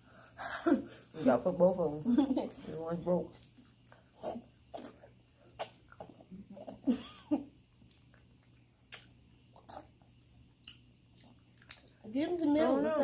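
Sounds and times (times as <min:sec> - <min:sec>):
wet chewing sounds: 0:03.0 - 0:12.5.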